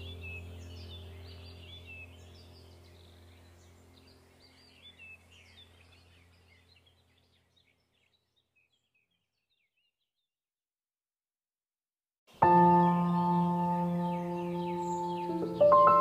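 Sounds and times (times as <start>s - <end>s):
low steady hum: 0.0s - 7.9s
birds chirping: 0.0s - 10.3s, 12.3s - 16.0s.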